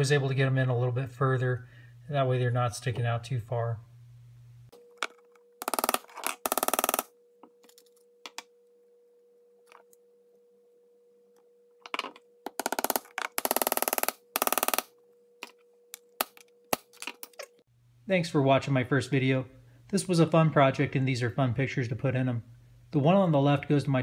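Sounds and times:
hammer tapping small nails: 12.0s - 14.9s.

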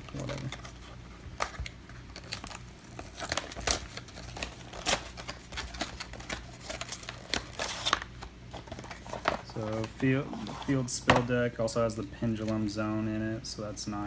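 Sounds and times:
cardboard packaging crinkling: 0.0s - 10.9s.

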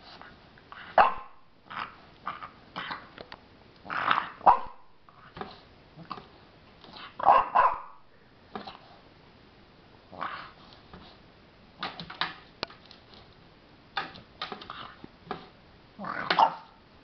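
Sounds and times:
puppy barking: 0.9s - 1.4s, 4.1s - 4.9s, 7.2s - 8.0s, 16.0s - 16.8s.

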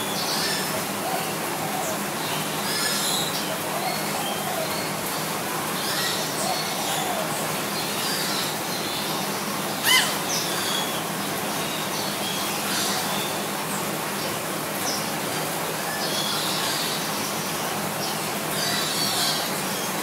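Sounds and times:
steady background hiss: 0.0s - 20.0s.

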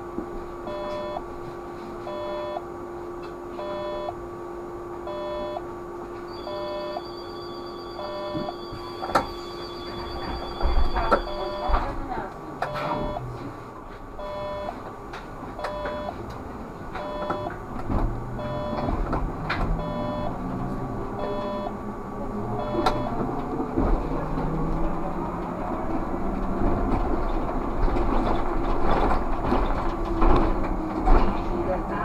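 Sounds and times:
trolleybus running rumble: 0.0s - 32.0s
two-tone electronic beep: 0.7s - 1.2s, 2.1s - 2.6s, 3.6s - 4.2s, 5.1s - 5.6s, 6.3s - 11.8s, 12.7s - 13.2s, 14.2s - 14.8s, 15.6s - 16.2s, 17.0s - 17.5s, 18.4s - 19.0s, 19.8s - 20.4s, 21.2s - 21.7s, 22.6s - 23.2s.

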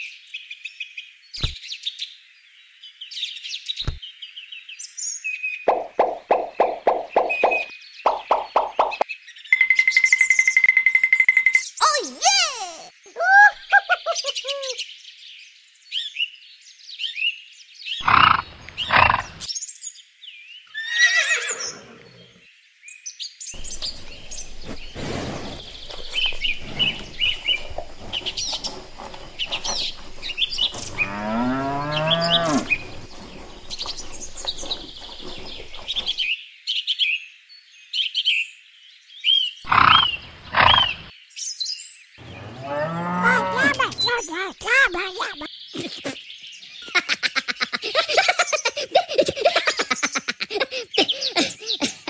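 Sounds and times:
birds chirping and singing: 5.7s - 9.5s, 11.6s - 15.1s, 23.6s - 36.4s, 39.2s - 52.0s
livestock call rising in pitch: 25.8s - 36.2s, 42.2s - 44.1s.

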